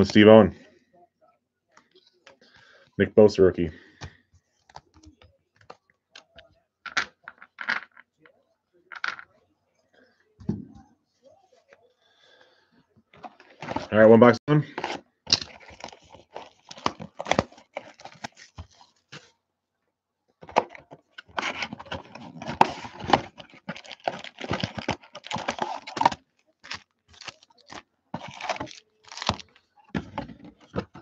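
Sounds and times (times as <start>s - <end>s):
tearing and crinkling wrappers: 14.7s - 19.1s, 21.2s - 29.7s.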